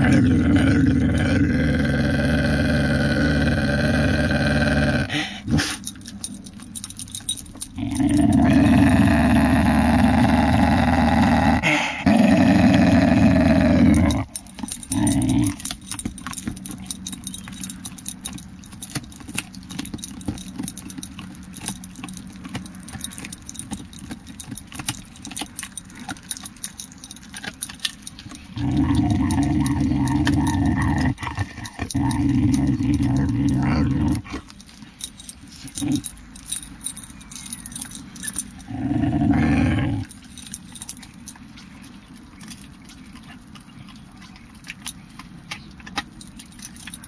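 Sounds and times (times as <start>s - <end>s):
dog growling: 0.0s - 5.9s, 7.6s - 18.0s, 25.2s - 34.7s, 35.5s - 36.2s, 37.4s - 41.1s.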